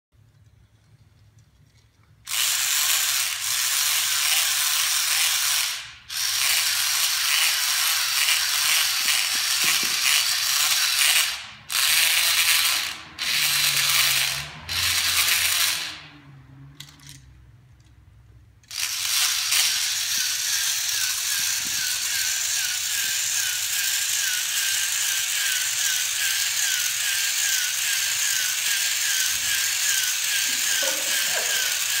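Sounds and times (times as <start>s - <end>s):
small motors whirring and grinding: 2.3s - 16.1s, 18.6s - 32.0s.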